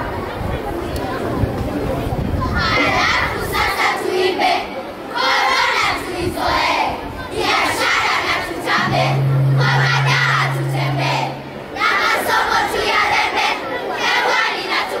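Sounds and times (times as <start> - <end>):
children chanting: 7.4 - 15.0
low hum: 8.7 - 12.3.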